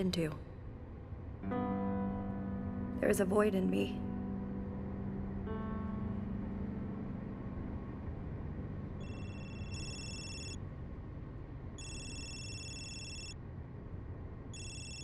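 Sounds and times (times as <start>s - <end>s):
phone ringtone: 9.0s - 10.6s, 11.8s - 13.4s, 14.6s - 15.0s.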